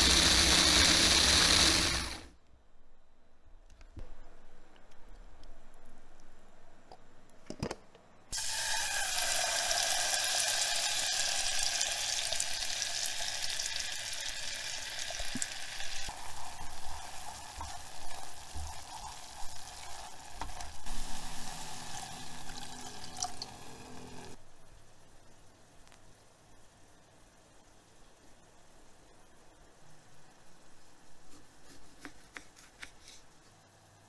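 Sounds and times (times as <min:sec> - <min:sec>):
chillies sizzling in hot oil: 0:08.3 - 0:24.4
water poured into pot: 0:08.4 - 0:24.4.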